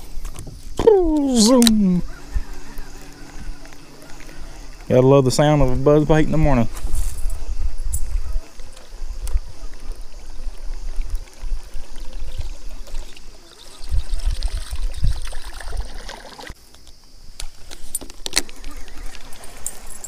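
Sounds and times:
lure splashing on water: 8.1 - 16.6.

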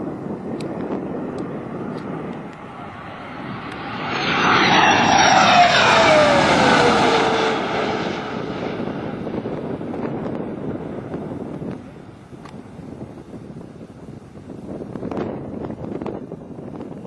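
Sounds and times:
jet engine passing: 0.8 - 12.2
jet whine falling in pitch: 1.6 - 9.6.

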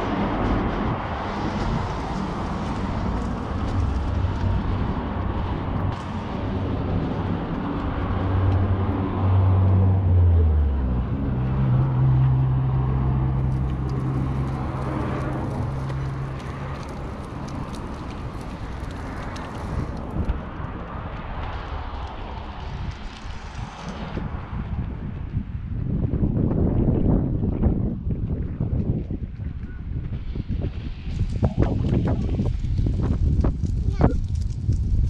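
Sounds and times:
vehicle engine passing: 0.0 - 20.8.

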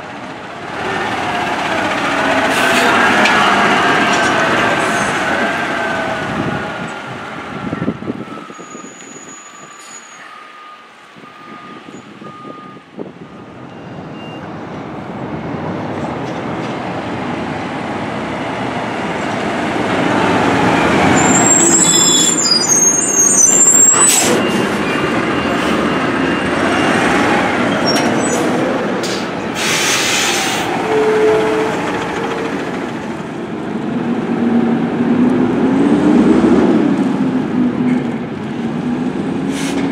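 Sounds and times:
garbage trucks driving past: 0.0 - 15.9, 16.8 - 39.9
high squeal: 8.3 - 12.1, 21.1 - 28.7
air brake hiss: 29.1 - 30.7, 39.5 - 39.9.

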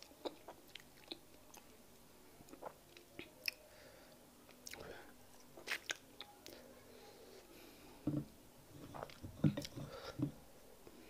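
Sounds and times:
chewing and wet mouth sounds: 0.0 - 1.7, 2.5 - 3.6, 4.5 - 5.0, 5.6 - 6.6, 8.8 - 9.8.

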